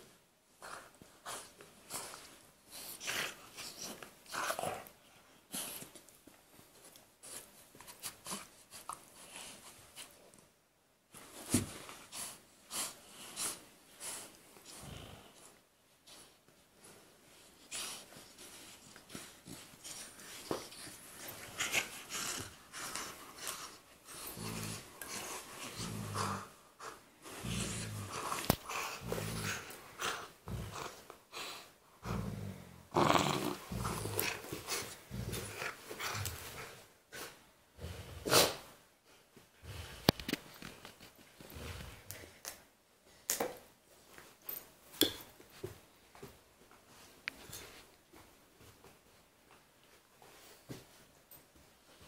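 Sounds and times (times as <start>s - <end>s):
dogs snuffling and huffing: 11.2s - 42.7s
low play growls: 27.3s - 31.0s, 32.0s - 36.2s.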